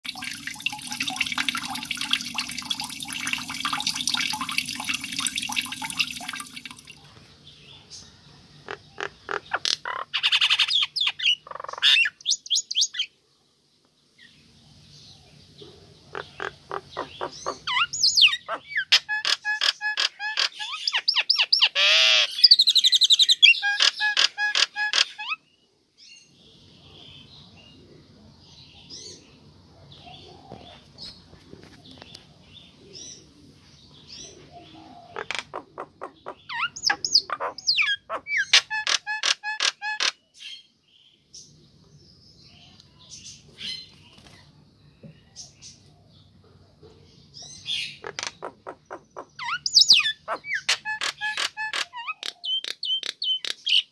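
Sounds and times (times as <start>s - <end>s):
myna bird calling: 8.6s - 13.1s, 16.1s - 25.4s, 34.3s - 40.4s, 47.6s - 53.9s.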